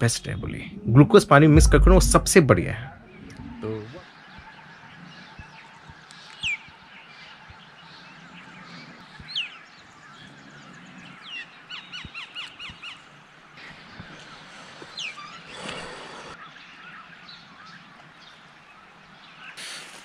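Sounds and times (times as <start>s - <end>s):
birds whistling: 13.6s - 17.8s.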